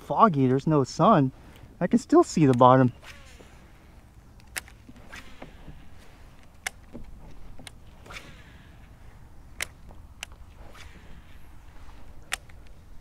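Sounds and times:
fishing rod swishes: 7.5 - 12.5.

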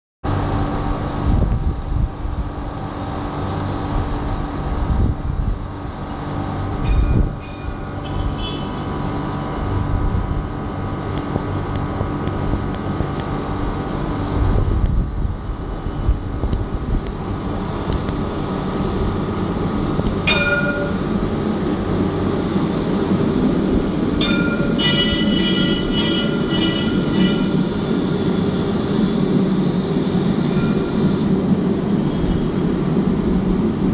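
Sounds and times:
tram drive hum: 0.2 - 33.9
tram wheel rumble: 0.2 - 33.9
pitched warning signal: 24.2 - 27.7.

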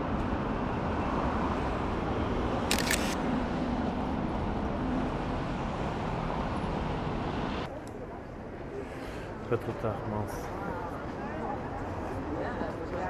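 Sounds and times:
street traffic hum: 0.0 - 13.0
camera shutter click: 2.7 - 3.2.

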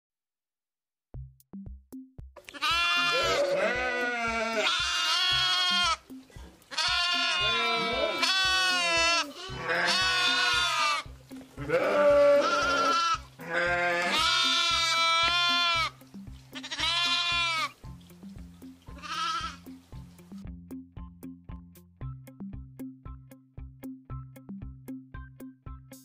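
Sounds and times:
background music with beat: 1.1 - 26.0
sheep bleating: 2.4 - 17.8, 18.9 - 19.7.

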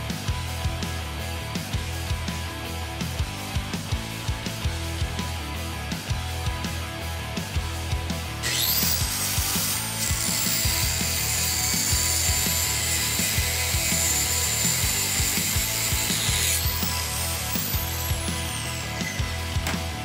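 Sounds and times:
background music with a beat: 0.0 - 20.0
angle grinder grinding steel: 8.3 - 20.0.

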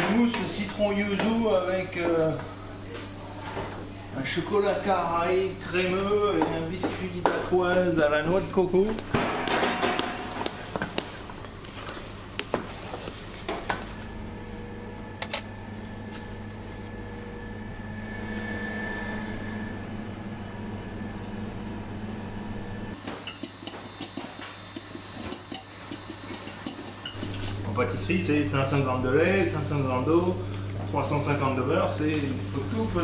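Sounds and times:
steady machine hum: 0.0 - 33.0
metal pans and utensils clattering: 9.1 - 11.2, 23.0 - 27.6.

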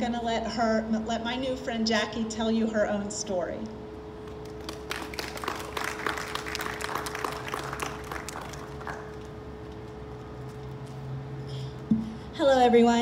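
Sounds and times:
audience applauding: 4.5 - 9.4.

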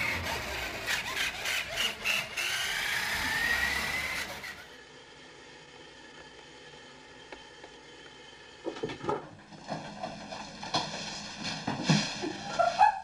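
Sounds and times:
toy truck motor whine: 0.0 - 8.6.

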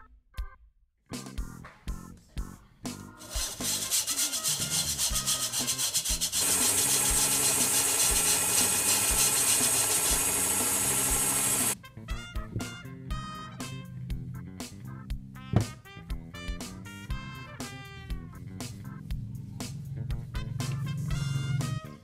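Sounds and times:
flour scraped through metal sieve: 3.2 - 11.8.

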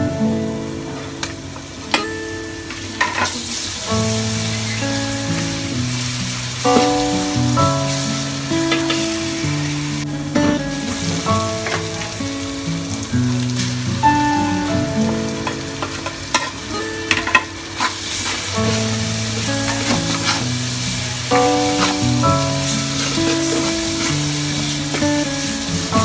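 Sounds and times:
background melody of held notes: 0.0 - 26.0
onions sizzling in oil: 0.3 - 26.0
metal spatula scraping a pot: 19.6 - 20.5, 21.4 - 22.1.

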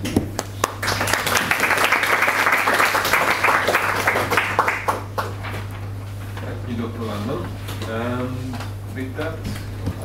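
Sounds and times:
audience applauding: 0.4 - 5.4.

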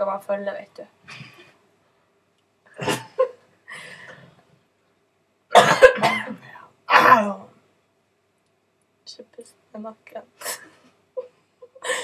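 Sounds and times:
person coughing: 2.8 - 3.3, 5.5 - 7.4.

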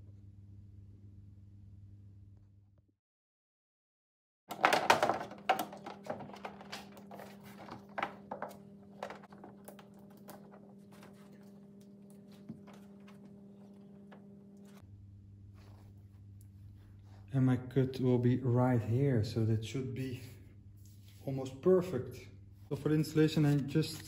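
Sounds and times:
faint steady hum: 5.5 - 24.0.

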